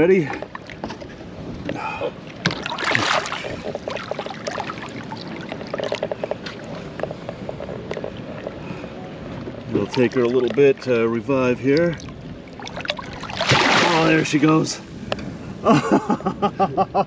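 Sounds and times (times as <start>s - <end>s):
water splashing and sloshing: 0.0s - 16.1s.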